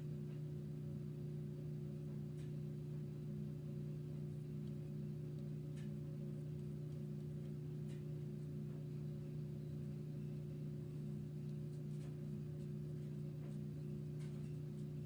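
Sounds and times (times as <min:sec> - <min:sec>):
low electrical hum: 0:00.0 - 0:15.0
faint pulsing tone: 0:06.0 - 0:15.0.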